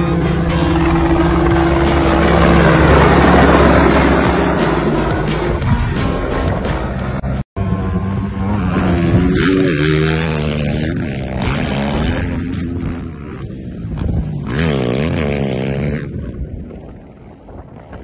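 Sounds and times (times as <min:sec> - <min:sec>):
motorcycle engine revving: 0:00.0 - 0:17.0
wind noise on microphone: 0:10.5 - 0:18.0.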